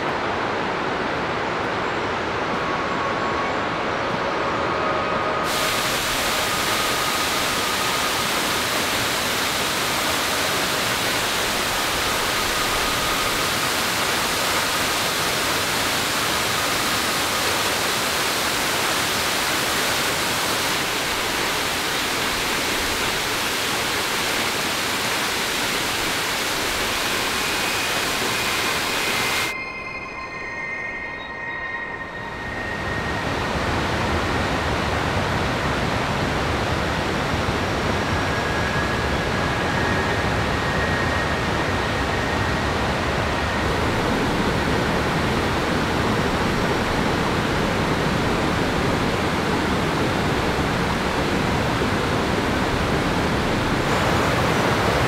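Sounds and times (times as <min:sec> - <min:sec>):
mountain stream rushing: 0:00.0 - 0:29.6, 0:32.2 - 0:55.0
waterfall rushing: 0:05.4 - 0:29.5, 0:40.5 - 0:55.0.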